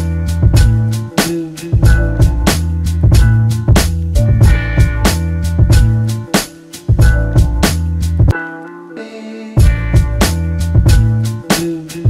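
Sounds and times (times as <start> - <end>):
bass line: 0.0 - 6.3, 7.0 - 8.3, 9.6 - 11.5
music with drum beat: 0.0 - 8.3, 9.6 - 12.0.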